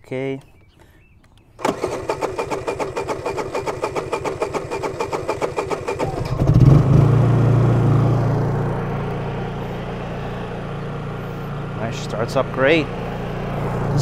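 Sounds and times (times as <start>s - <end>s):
generator cranking: 1.6s - 7.6s
generator running: 1.6s - 14.0s.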